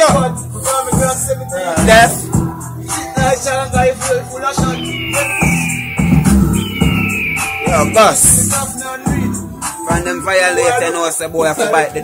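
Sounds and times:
man's voice: 0.0 - 5.8, 7.6 - 12.0
hip hop beat: 0.0 - 12.0
drum hits: 4.6 - 9.2.

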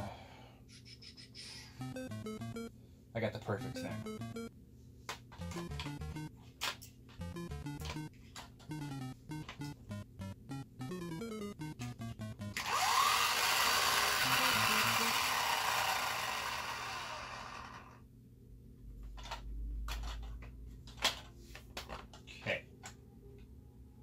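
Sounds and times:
background music: 1.8 - 2.7, 3.6 - 4.5, 5.4 - 6.3, 7.2 - 8.1, 8.7 - 12.6.

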